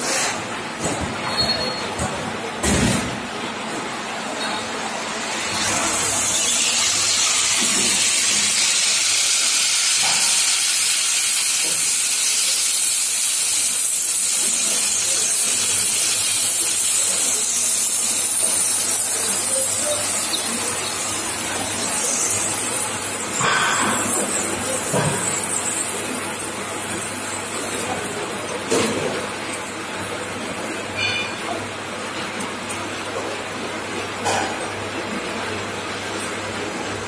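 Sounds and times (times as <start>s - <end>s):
steam hissing: 5.4s - 27.9s.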